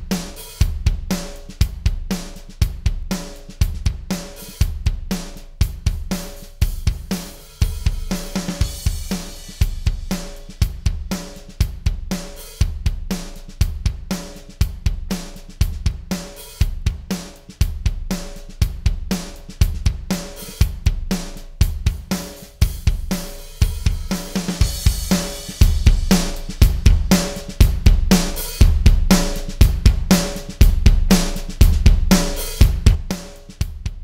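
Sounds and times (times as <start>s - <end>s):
drum kit groove: 0.0s - 34.0s.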